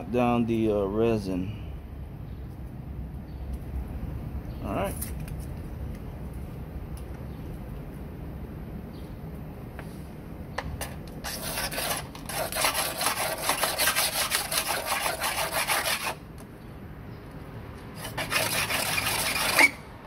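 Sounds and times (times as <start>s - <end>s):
razor blade scraping resin: 11.2s - 16.2s, 18.0s - 19.9s.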